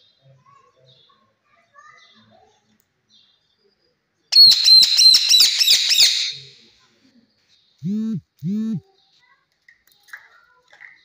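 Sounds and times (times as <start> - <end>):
parakeet screeching: 4.4 - 6.6
short low-pitched sounds: 7.8 - 8.8.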